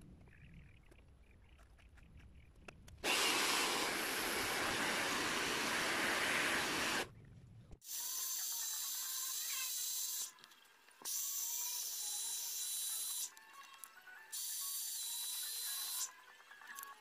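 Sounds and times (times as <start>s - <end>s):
hair dryer blowing: 3.0s - 7.1s.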